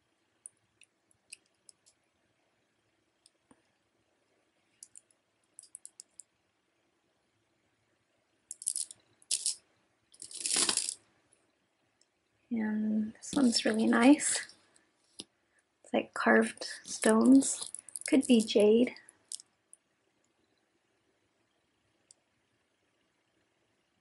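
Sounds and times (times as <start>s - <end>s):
beads clicking together: 4.8s - 6.3s, 8.5s - 11.0s, 16.7s - 19.9s
jewelry rattling on a table: 4.8s - 6.3s, 8.5s - 11.0s, 13.3s - 14.5s, 16.7s - 19.4s.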